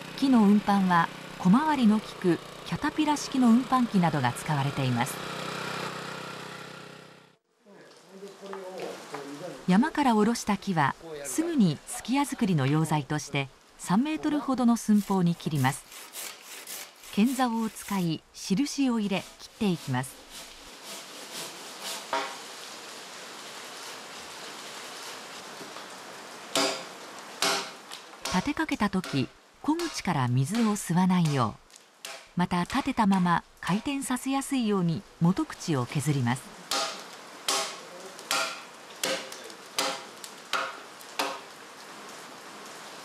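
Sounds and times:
hand saw rasping through log: 0:15.6 - 0:18.1, 0:19.2 - 0:22.3
axe chopping log: 0:26.6 - 0:28.4, 0:36.7 - 0:41.4.

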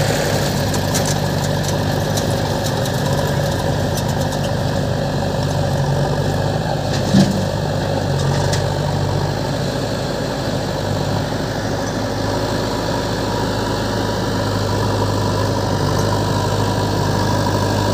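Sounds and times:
diesel engines idling: 0:00.0 - 0:17.9.

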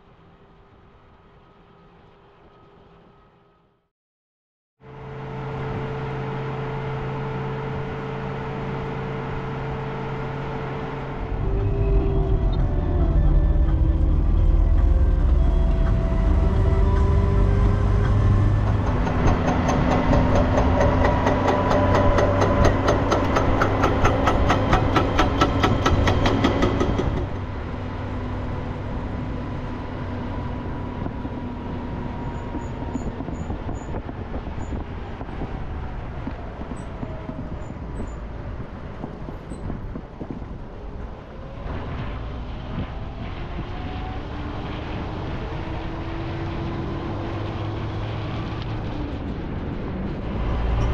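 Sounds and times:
vehicle engine running: 0:04.9 - 0:41.3.

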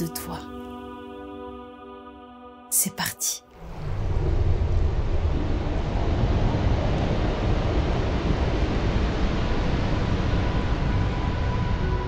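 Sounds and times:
steady low rushing noise: 0:03.5 - 0:12.0.

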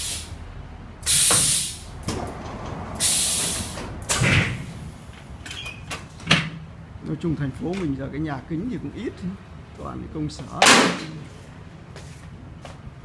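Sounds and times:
compressed air hissing: 0:00.0 - 0:00.4, 0:01.0 - 0:02.0, 0:03.0 - 0:05.0.

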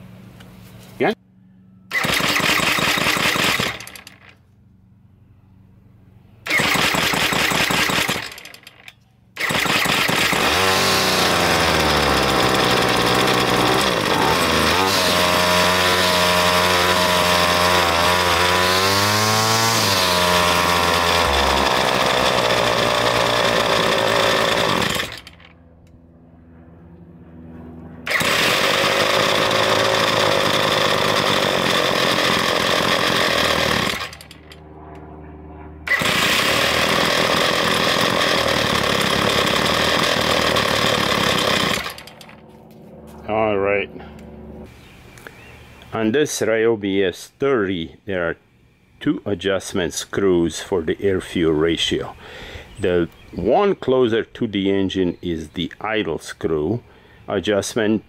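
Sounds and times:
string trimmer engine revving: 0:01.9 - 0:04.4, 0:06.4 - 0:25.6, 0:28.0 - 0:34.6, 0:35.9 - 0:42.4.

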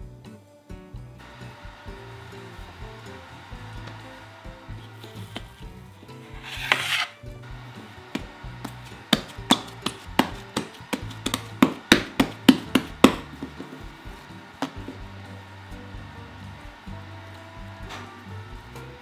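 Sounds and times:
soft background music: 0:00.0 - 0:19.0
hands rubbing dough: 0:01.5 - 0:16.8
hands slapping dough: 0:05.0 - 0:07.1, 0:08.1 - 0:15.2.

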